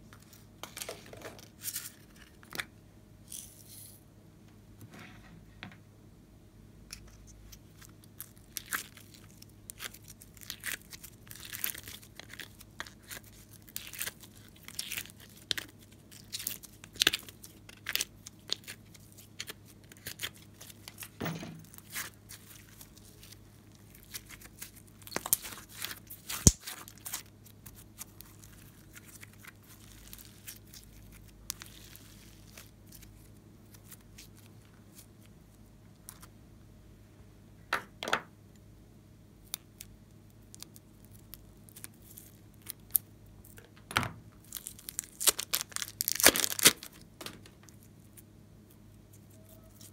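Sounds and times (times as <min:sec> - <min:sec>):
slime crackling and popping: 0:07.8 - 0:35.1, 0:44.4 - 0:47.9.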